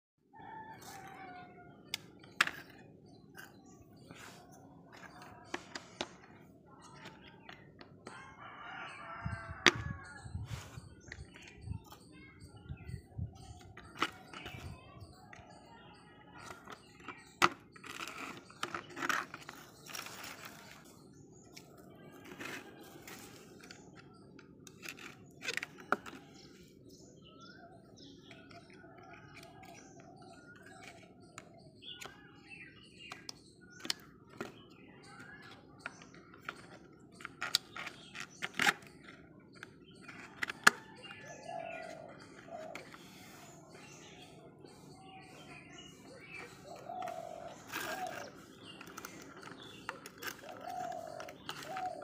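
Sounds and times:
birds chirping: 0.3s - 52.0s
plastic toy parts clicking and knocking: 16.4s - 20.9s, 21.6s - 26.4s, 33.1s - 41.0s, 47.0s - 52.0s.

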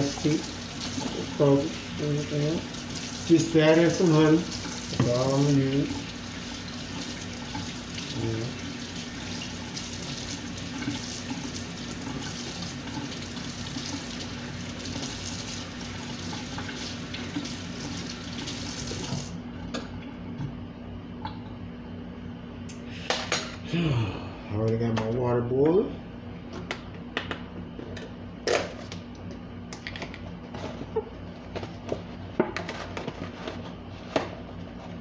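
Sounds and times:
water running from tap: 0.0s - 19.4s
low steady hum: 0.0s - 35.0s.

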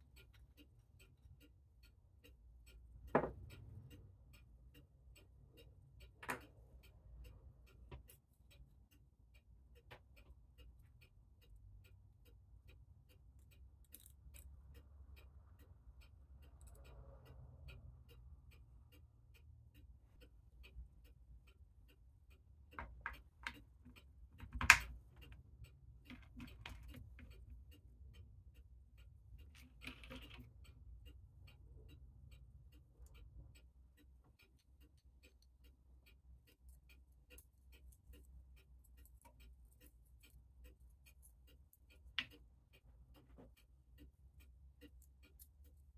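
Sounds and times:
mechanical clock ticking: 0.0s - 45.9s
metal clicks and clacks: 22.7s - 27.5s.

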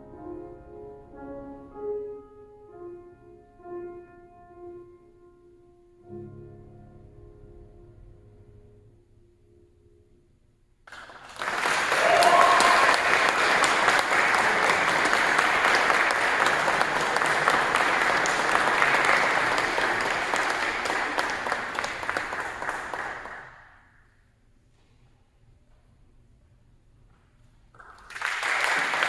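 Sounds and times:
audience applauding: 10.9s - 23.8s, 27.8s - 29.0s.

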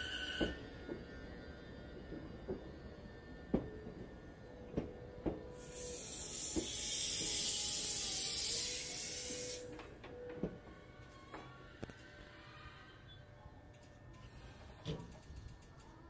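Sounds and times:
air brakes hissing: 5.5s - 9.8s.

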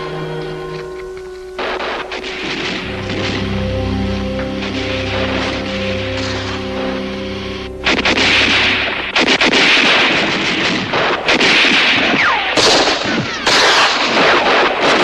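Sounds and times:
falling whine: 0.0s - 11.3s
rifle gunfire: 9.2s - 15.0s.

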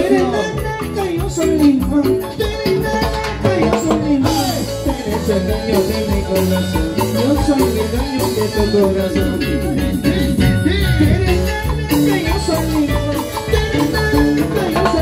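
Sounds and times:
latin dance band playing: 0.0s - 15.0s.

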